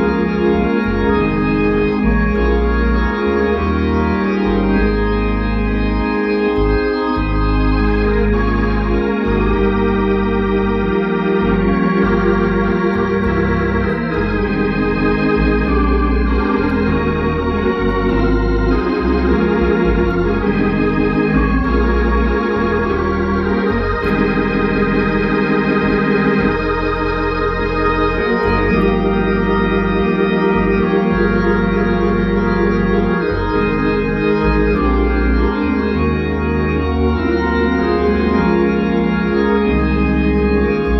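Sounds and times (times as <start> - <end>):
organ playing hymn chords: 0.0 - 40.9.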